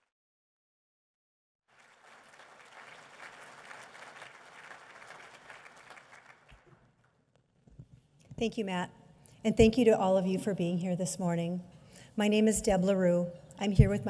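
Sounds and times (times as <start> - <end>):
audience applauding: 1.7 - 7.1.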